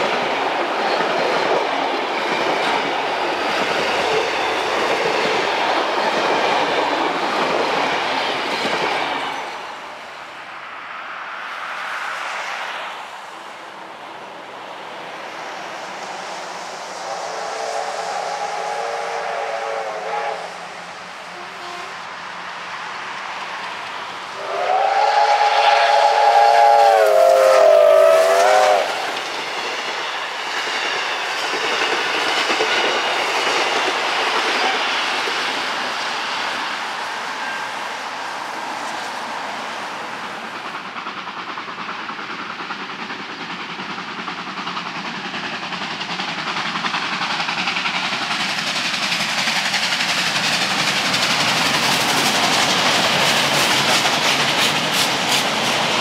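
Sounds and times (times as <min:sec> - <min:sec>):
steam train rushing past: 0:00.0 - 0:56.0
steam locomotive whistle: 0:16.9 - 0:22.0, 0:24.4 - 0:29.3
wheels clicking over rail joints: 0:40.4 - 0:56.0.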